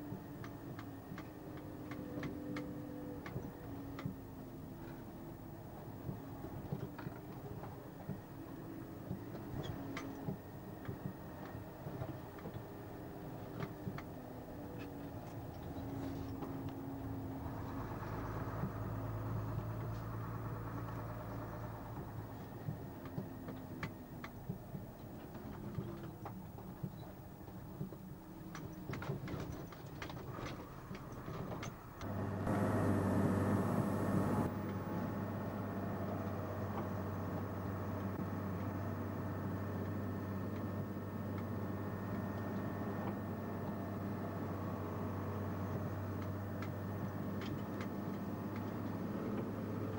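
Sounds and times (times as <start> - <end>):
diesel engine running: 13.1 - 24.5, 29.9 - 49.9.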